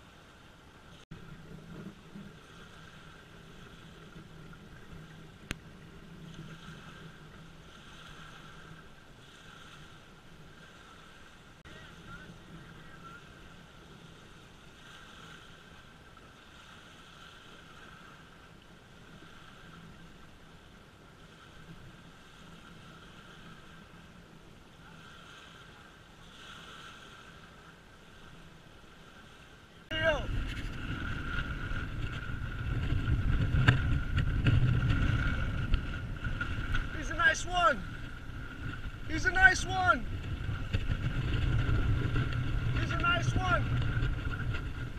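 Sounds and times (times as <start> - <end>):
water noise: 0.0 - 44.9
wind: 0.0 - 44.9
low rumble: 29.9 - 44.9
water washing onto rocky shore: 29.9 - 44.9
wind buffeting microphone: 29.9 - 44.9.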